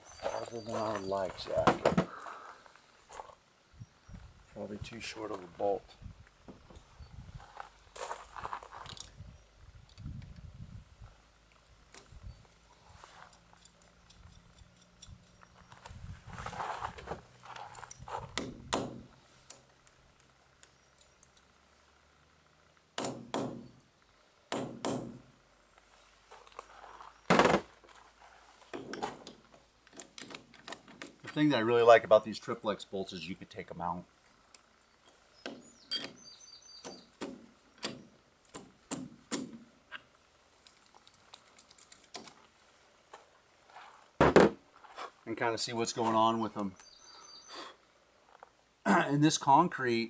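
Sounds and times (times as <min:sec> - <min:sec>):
bird chirp: 0:00.0 - 0:01.6, 0:13.8 - 0:16.0, 0:34.8 - 0:37.9, 0:46.6 - 0:47.7
metal hardware clinking: 0:35.9 - 0:36.2.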